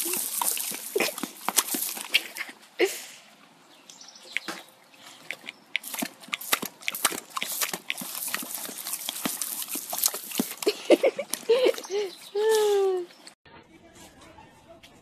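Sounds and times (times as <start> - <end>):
water splashing: 0.0 - 2.5, 5.4 - 12.8
dogs snapping and snorting: 0.0 - 2.8, 4.3 - 12.3.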